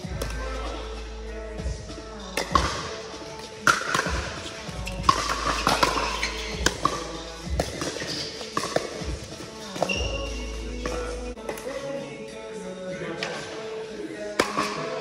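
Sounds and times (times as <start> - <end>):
paddles hitting plastic ball: 2.4 - 10.2.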